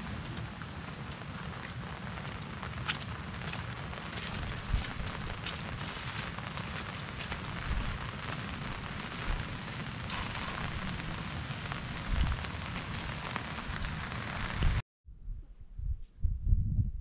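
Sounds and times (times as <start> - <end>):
rain falling on grass: 0.0 - 14.8
low bumps: 14.6 - 17.0
low rumble: 14.6 - 17.0.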